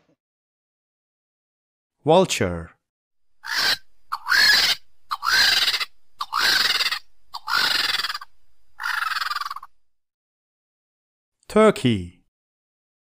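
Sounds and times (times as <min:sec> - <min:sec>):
vultures screeching: 0:03.4 - 0:09.8.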